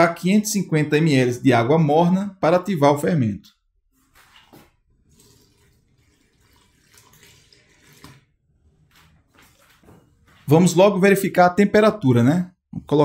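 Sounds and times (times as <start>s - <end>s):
water pouring into bowl: 4.1s - 9.8s.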